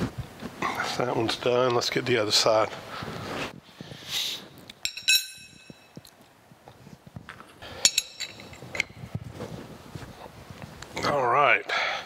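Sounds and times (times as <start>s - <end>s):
metal tools clinking on steel: 4.8s - 6.0s, 7.8s - 8.9s.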